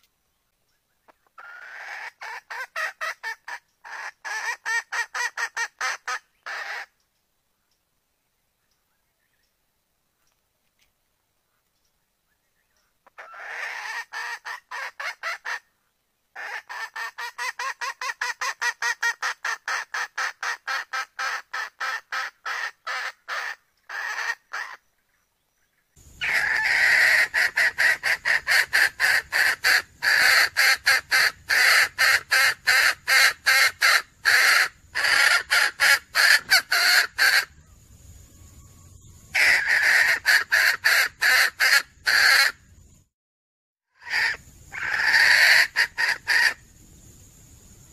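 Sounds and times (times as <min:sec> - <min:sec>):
hen clucking: 0:26.2 - 0:37.5, 0:39.4 - 0:42.6, 0:44.0 - 0:46.6.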